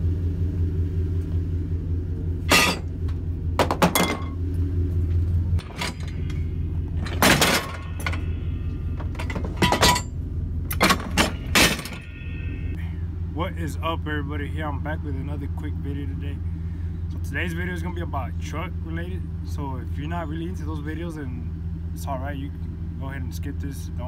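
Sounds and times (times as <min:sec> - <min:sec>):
low mechanical hum: 0:00.0 - 0:24.0
metal parts clanking and scraping: 0:02.5 - 0:03.0, 0:03.6 - 0:04.4, 0:05.5 - 0:12.4.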